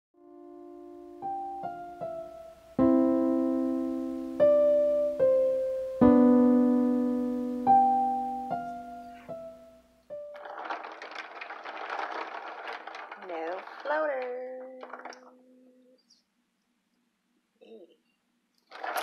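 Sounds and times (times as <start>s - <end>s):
slow solo piano: 0.2s - 10.3s
rough noisy sound: 10.4s - 15.3s.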